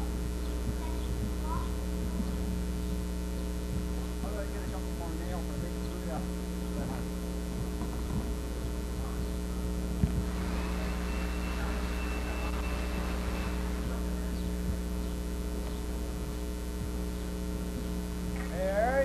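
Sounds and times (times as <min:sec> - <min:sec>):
electrical mains hum: 0:00.0 - 0:19.0
thin steady high tone: 0:08.7 - 0:16.3.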